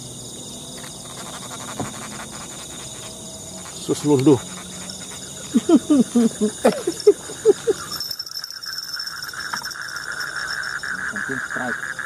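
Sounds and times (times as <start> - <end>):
crickets and night insects buzzing: 0.0 - 12.0.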